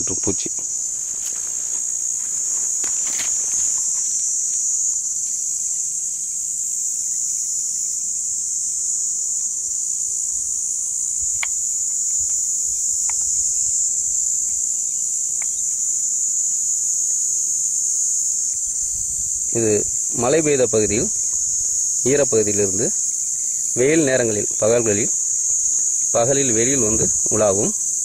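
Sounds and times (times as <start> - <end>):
insect chorus drone: 0.0 - 28.0
faint clicks: 11.4 - 13.4, 15.3 - 15.7.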